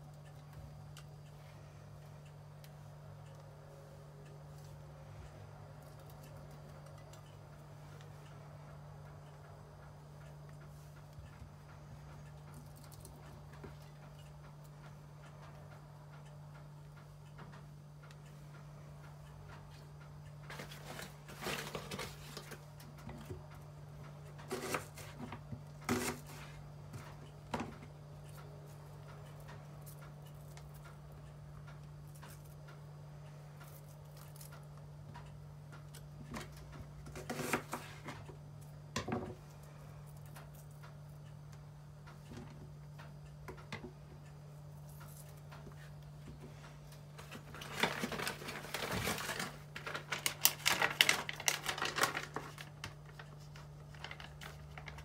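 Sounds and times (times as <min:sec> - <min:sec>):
steady low hum: 0:00.0 - 0:55.0
plastic packet crinkling: 0:47.2 - 0:55.0.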